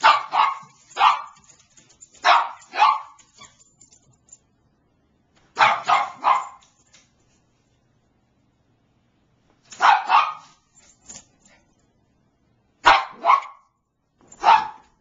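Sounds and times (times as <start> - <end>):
small dog barking: 0.0 - 1.5, 2.2 - 3.4, 5.6 - 6.6, 9.8 - 10.6, 12.8 - 13.8, 14.4 - 15.0.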